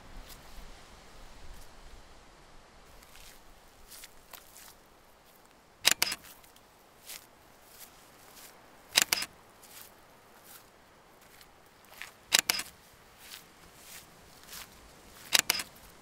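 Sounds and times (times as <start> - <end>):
footsteps rustling through undergrowth: 0.0 - 1.9, 2.8 - 16.0
sharp snapping cracks: 9.0 - 9.3, 12.3 - 12.7, 15.3 - 15.7.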